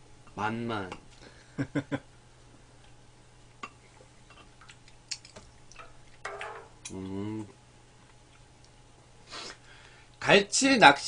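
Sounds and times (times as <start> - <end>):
steady low hum: 0.0 - 11.0
sharp eating clicks: 2.8 - 6.2.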